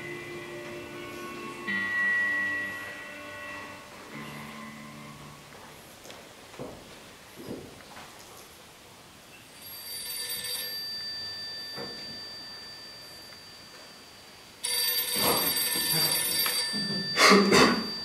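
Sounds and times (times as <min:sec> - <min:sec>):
telephone bell ringing: 0:09.6 - 0:18.0.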